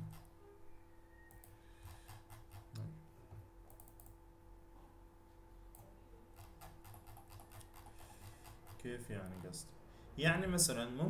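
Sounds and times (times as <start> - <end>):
faint computer clicks: 3.7 - 4.2.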